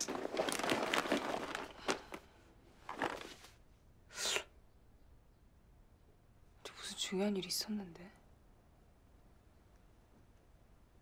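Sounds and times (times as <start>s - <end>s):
cloth rustling: 0.0s - 2.2s, 2.8s - 3.6s.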